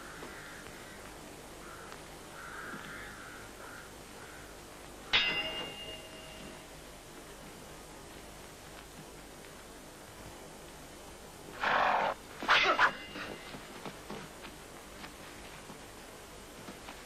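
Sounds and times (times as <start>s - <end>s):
steel swords clashing and ringing: 5.2s - 6.7s, 11.6s - 13.7s.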